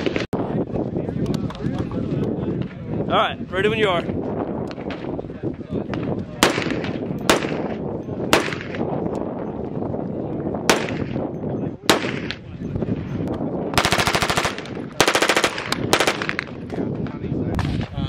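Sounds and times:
full-auto gunfire bursts: 6.4s - 7.7s, 8.3s - 8.8s, 10.7s - 11.1s, 11.9s - 12.4s, 13.8s - 16.5s
heavy rifle shots: 6.4s - 8.9s, 10.7s - 11.2s, 13.8s - 16.6s.

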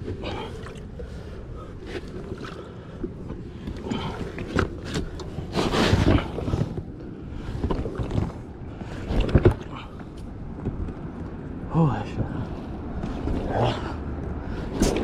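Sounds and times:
kayak hull scraping over mud: 1.8s - 9.8s.

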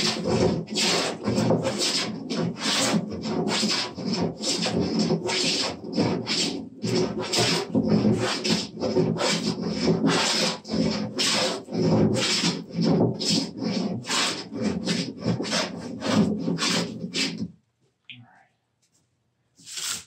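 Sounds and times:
hand plane rasping on wood: 0.0s - 17.5s.

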